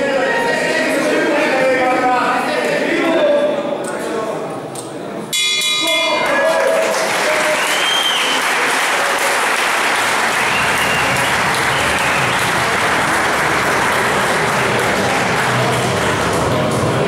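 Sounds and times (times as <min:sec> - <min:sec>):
crowd applauding: 0:06.1 - 0:17.0.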